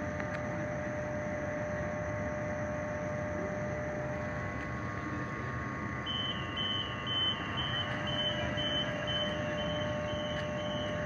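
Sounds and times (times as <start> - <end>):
electrical hum of train: 0.0 - 11.0
train door warning beeps: 6.0 - 11.0.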